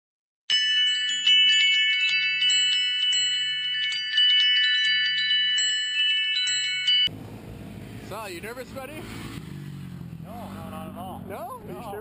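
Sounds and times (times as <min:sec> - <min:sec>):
high chime tones: 0:00.5 - 0:07.1.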